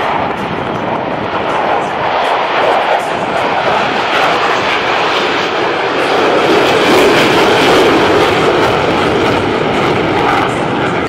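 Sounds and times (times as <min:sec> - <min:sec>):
fighter jets roaring past: 0:00.0 - 0:11.0.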